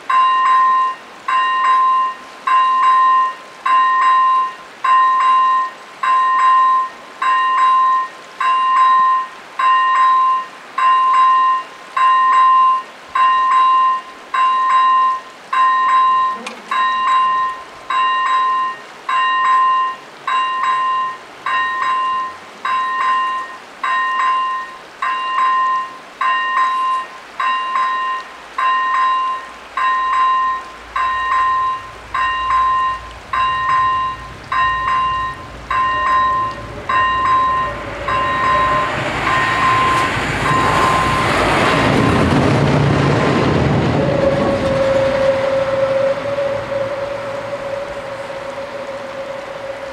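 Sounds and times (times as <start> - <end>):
level crossing warning bells: 0.0 - 42.4
low rumble: 30.9 - 49.9.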